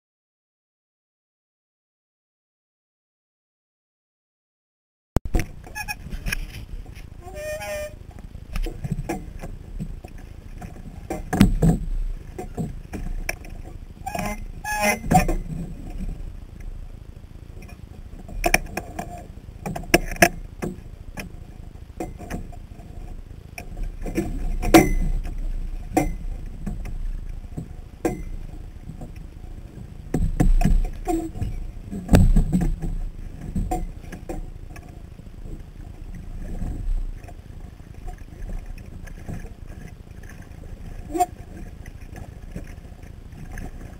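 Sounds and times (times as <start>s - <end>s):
water splashing against boat hull: 5.3s - 16.8s, 22.0s - 43.9s
wind rumbling on camera: 5.3s - 43.9s
sharp knocks: 30.1s - 33.0s.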